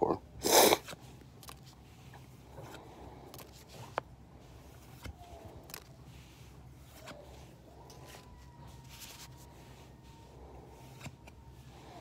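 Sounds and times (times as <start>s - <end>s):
trading cards scraping and clicking: 0.7s - 4.1s.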